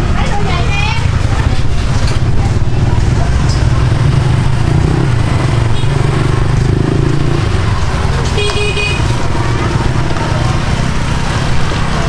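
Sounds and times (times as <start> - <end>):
motor vehicle running: 0.0 - 12.0
horn toot: 8.4 - 9.1.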